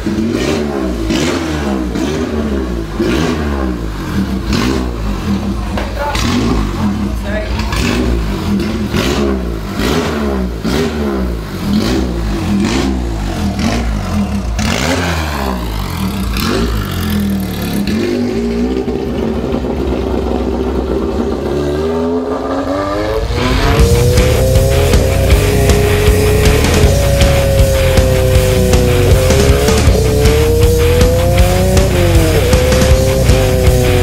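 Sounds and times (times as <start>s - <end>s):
race car engine revving: 0.0s - 34.0s
loud music: 22.5s - 34.0s.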